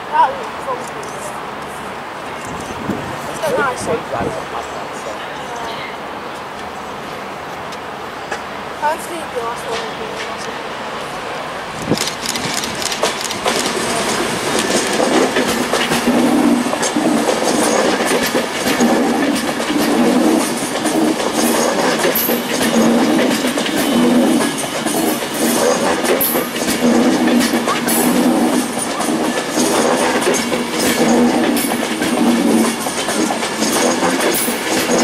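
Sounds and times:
train wheels clattering: 11.8 - 35.0.

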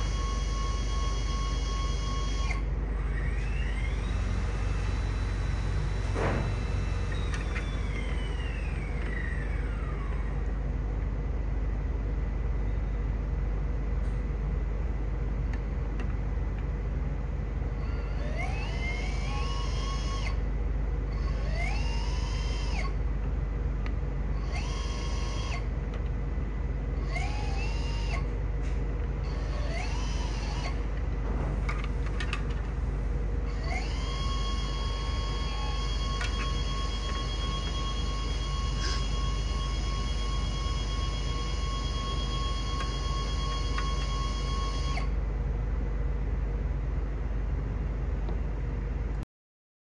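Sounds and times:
electric thruster motors whining: 0.0 - 11.0, 17.6 - 23.1, 24.3 - 26.1, 26.8 - 45.2
steady low hum: 0.0 - 49.2.

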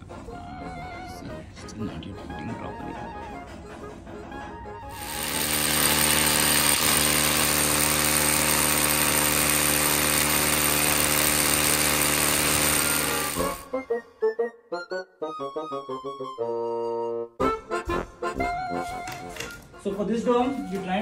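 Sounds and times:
electric drill boring into stone: 4.9 - 13.8.

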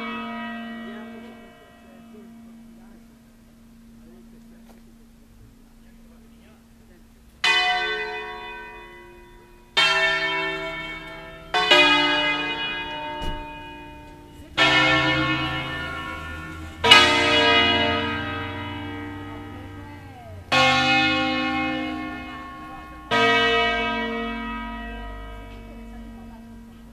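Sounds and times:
church bells ringing: 0.0 - 26.9.

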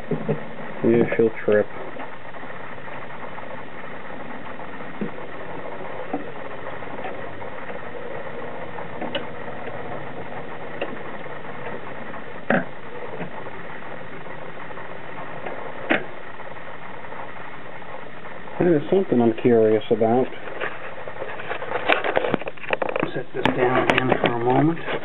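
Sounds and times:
record changer mechanism running: 0.0 - 25.0
tonearm clicks and clunks: 8.6 - 11.8, 12.4 - 13.4, 15.3 - 16.2.

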